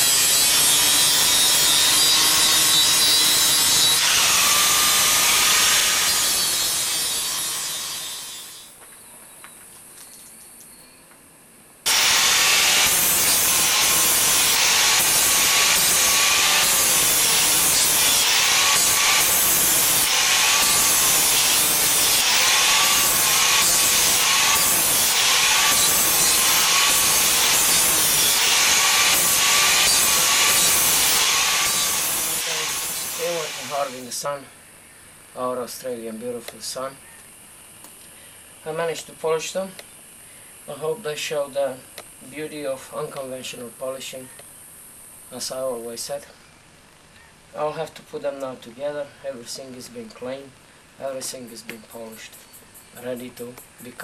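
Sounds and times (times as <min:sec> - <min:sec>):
angle grinder polishing steel: 0:00.0 - 0:08.7, 0:11.9 - 0:34.2.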